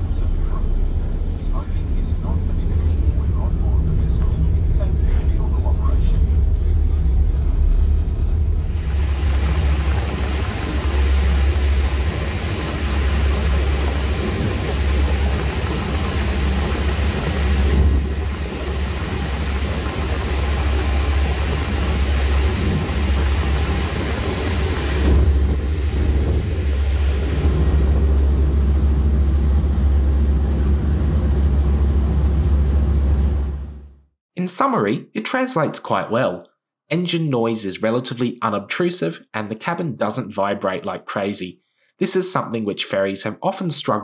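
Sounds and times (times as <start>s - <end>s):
churned wake water: 0.0s - 33.9s
thin high whine: 0.0s - 33.9s
wind rushing: 5.8s - 33.9s.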